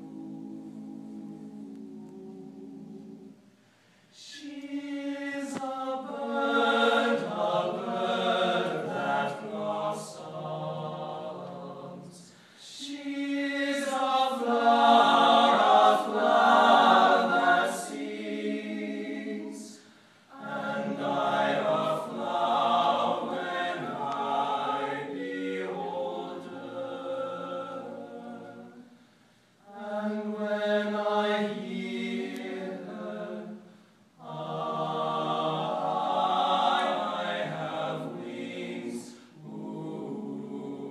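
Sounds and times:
men singing a cappella: 0:04.2 - 0:28.8.

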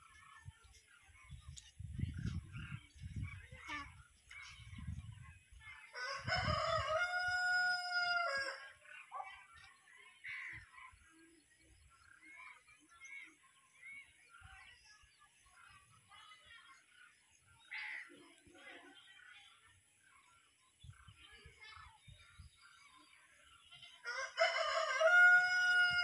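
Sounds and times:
rooster crowing: 0:06.0 - 0:08.6, 0:24.0 - 0:26.0.

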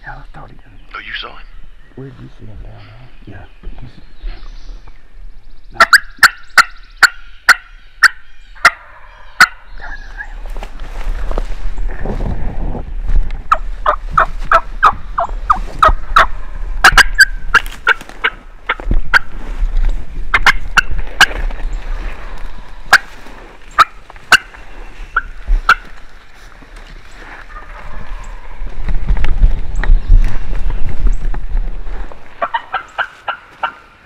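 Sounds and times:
turkey yelping: 0:05.8 - 0:10.3, 0:13.5 - 0:19.3, 0:20.3 - 0:21.3, 0:23.8 - 0:26.0, 0:27.5 - 0:28.4, 0:32.4 - 0:33.9
brush rustling: 0:10.2 - 0:34.0.

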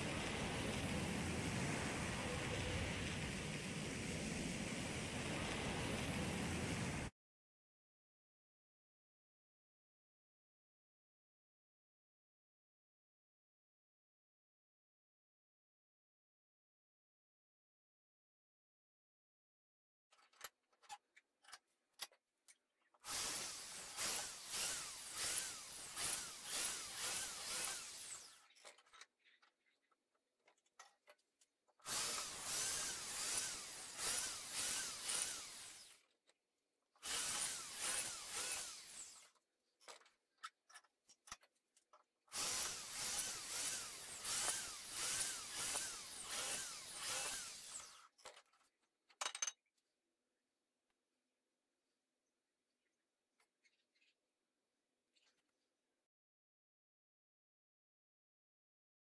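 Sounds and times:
power drill boring through steel: 0:23.0 - 0:28.7, 0:31.8 - 0:36.0, 0:37.0 - 0:39.4, 0:42.3 - 0:48.4.

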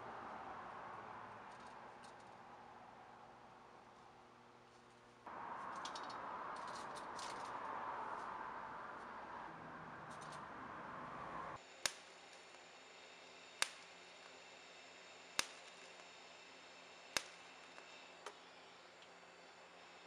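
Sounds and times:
steady hiss: 0:00.0 - 0:20.0
welding arc snaps: 0:11.6 - 0:20.0.

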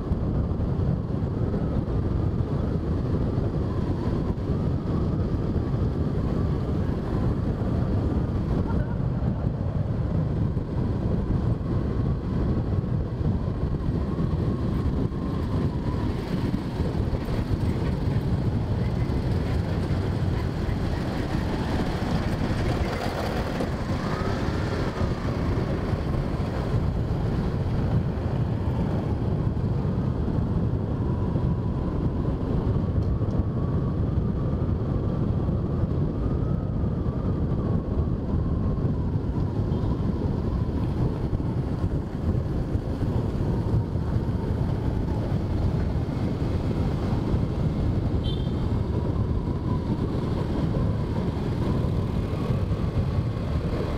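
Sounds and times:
motorbike rumble: 0:00.0 - 0:36.2, 0:37.0 - 0:53.9
wind on microphone: 0:00.0 - 0:53.9.

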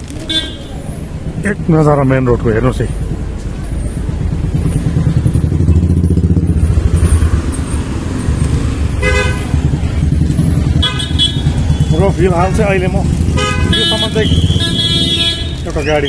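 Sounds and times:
vehicles passing: 0:00.0 - 0:16.0
vehicle horn toot: 0:00.3 - 0:00.7, 0:09.0 - 0:09.6, 0:10.8 - 0:12.0, 0:13.4 - 0:16.0.

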